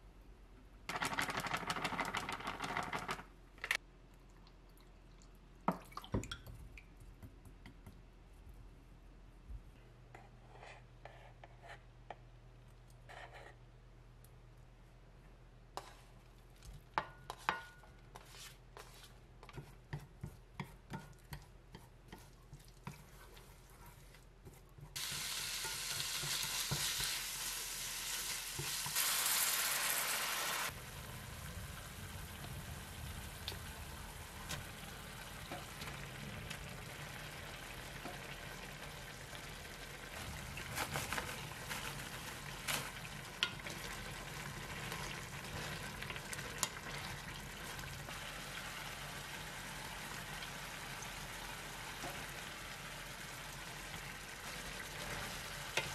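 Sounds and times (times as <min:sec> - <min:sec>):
spoon scraping frying pan: 0:17.0 - 0:27.2
sauce bubbling: 0:24.9 - 0:55.9
water hissing in hot pan: 0:25.0 - 0:43.3
loud frying sizzle: 0:25.0 - 0:55.9.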